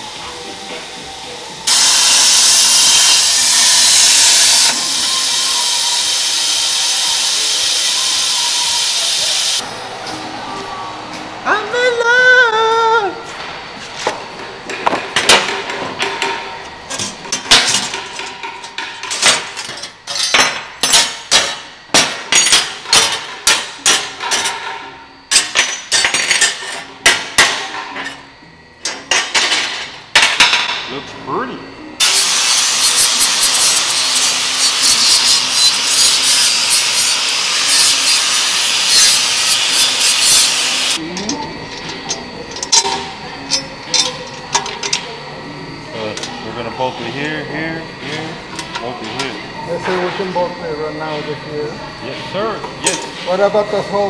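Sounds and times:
power tool harsh hiss: 0.0 - 9.6, 32.0 - 41.0.

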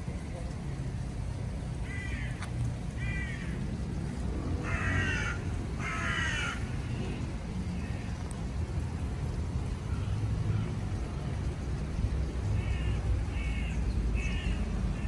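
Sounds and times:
crow cawing: 1.8 - 2.4, 3.0 - 3.5, 4.6 - 6.7, 12.6 - 15.0.

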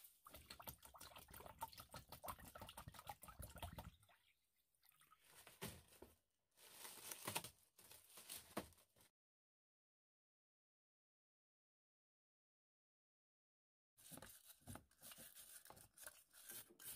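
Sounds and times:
water pouring into plastic tub: 0.0 - 5.6.

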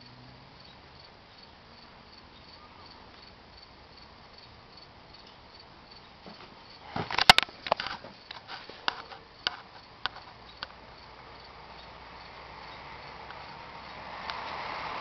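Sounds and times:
crickets chirping: 0.0 - 15.0
sharp clicks and knocks: 6.2 - 10.8.

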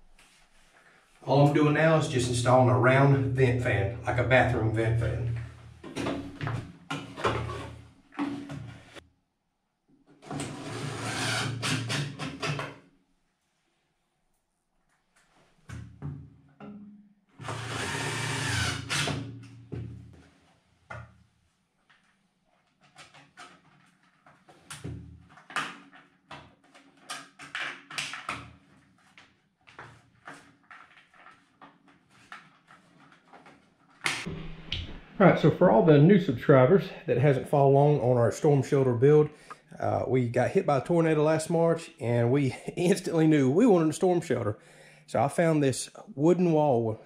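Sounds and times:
cordless drill driving screws: 10.4 - 12.5, 17.4 - 19.2.

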